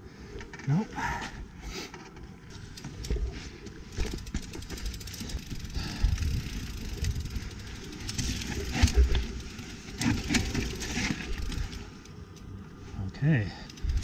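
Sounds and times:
bike tyres rumbling over dirt: 2.4s - 12.2s.

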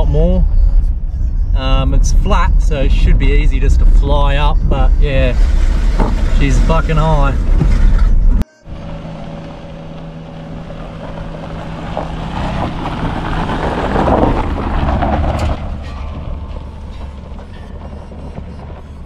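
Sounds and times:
car engine running: 0.0s - 19.0s
tyre noise on dirt: 5.2s - 19.0s.

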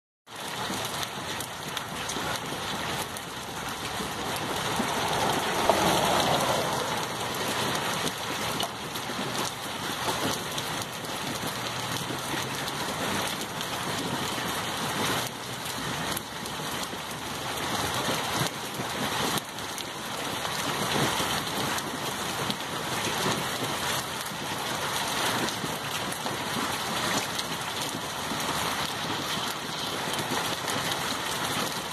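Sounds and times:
hail and rain pelting road: 0.3s - 31.9s.

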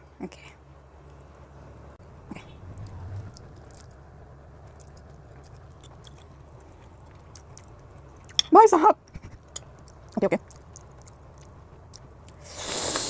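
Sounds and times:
person chewing noodles: 4.6s - 8.4s, 9.1s - 13.0s
wet mouth clicks: 9.1s - 11.2s, 11.9s - 13.0s.

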